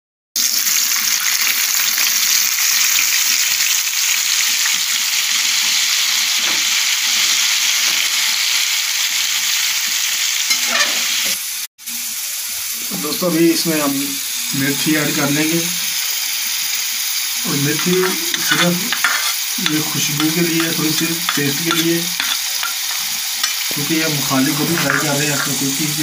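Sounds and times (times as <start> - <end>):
vegetables sizzling in oil: 0.4 - 26.0
turner stirring in pan: 17.6 - 26.0.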